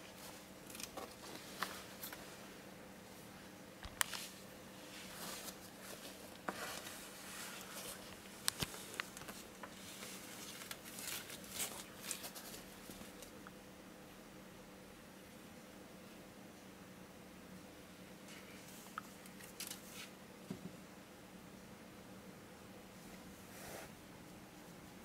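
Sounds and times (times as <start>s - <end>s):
faint steady hum: 0.0s - 25.0s.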